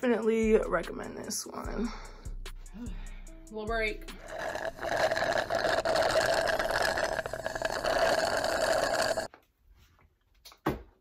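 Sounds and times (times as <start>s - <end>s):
drink slurped through a straw: 4.2s - 9.3s.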